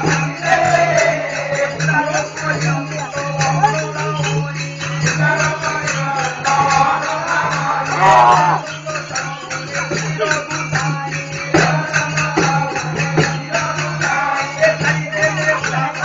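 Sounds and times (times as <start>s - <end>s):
fast percussion with jingles: 0.0s - 16.0s
person singing: 6.6s - 16.0s.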